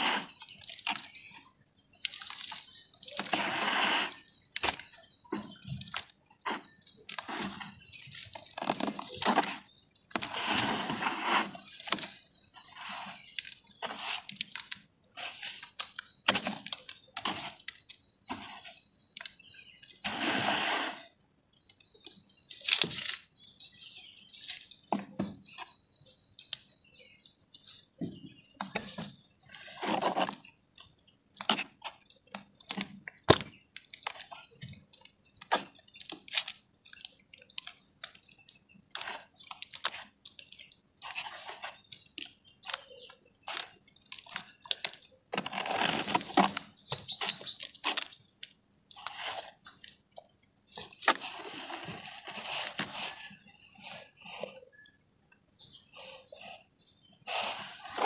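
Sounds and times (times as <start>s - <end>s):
hands squelching wet mud: 0.0s - 17.8s
high chirps: 46.0s - 47.8s.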